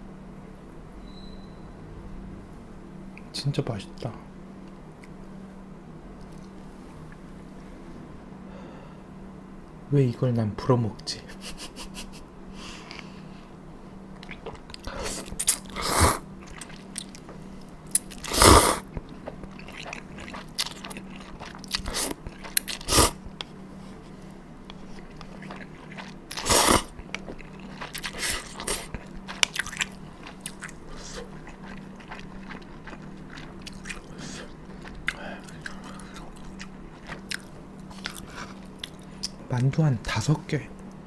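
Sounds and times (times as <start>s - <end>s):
wet chewing and smacking: 14.1s - 39.7s
person slurping noodles: 14.8s - 16.8s, 18.2s - 18.9s, 21.7s - 23.2s, 25.4s - 27.0s, 27.8s - 29.9s, 30.9s - 31.4s.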